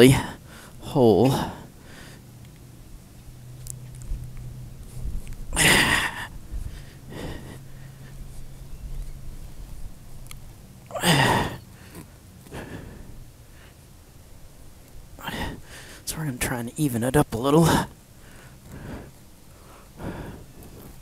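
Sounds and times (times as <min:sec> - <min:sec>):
man sighing heavily: 0:00.1 - 0:02.2, 0:05.5 - 0:07.7, 0:10.9 - 0:13.2, 0:15.2 - 0:16.0, 0:19.7 - 0:20.6.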